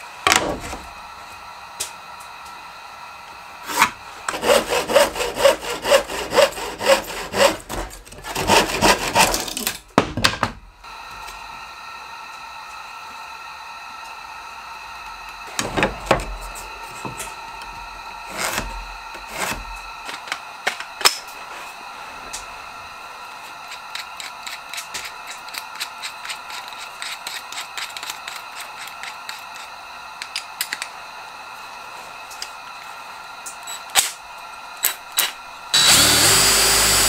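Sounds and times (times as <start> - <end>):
tools knocking and thudding: 10.0 - 10.6.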